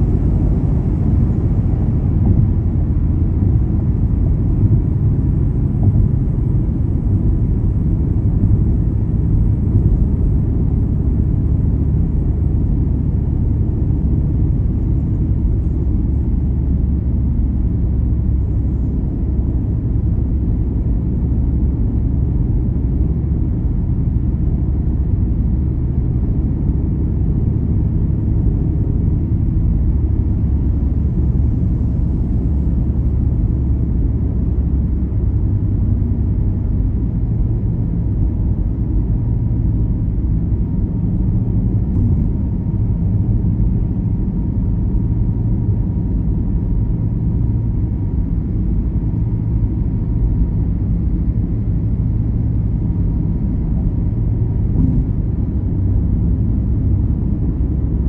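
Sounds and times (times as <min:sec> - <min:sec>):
car cabin road rumble: 0:00.0 - 0:58.0.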